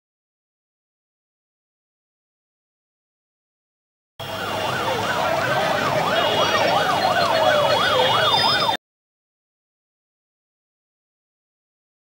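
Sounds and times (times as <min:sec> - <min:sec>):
siren yelping: 0:04.2 - 0:08.8
slower gliding siren tone: 0:04.2 - 0:08.8.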